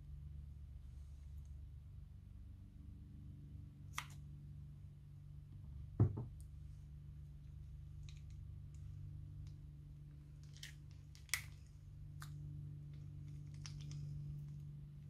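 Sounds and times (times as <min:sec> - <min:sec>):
low steady hum: 0:00.0 - 0:15.0
dull double knock: 0:06.0 - 0:06.3.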